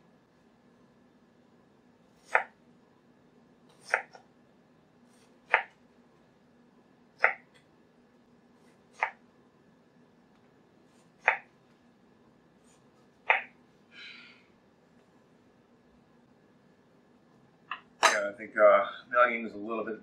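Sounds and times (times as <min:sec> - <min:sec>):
knife chopping onion on board: 0:02.2 - 0:02.6, 0:03.7 - 0:04.2, 0:05.2 - 0:05.8, 0:07.2 - 0:07.6, 0:08.9 - 0:09.2, 0:11.2 - 0:11.5, 0:13.2 - 0:13.6.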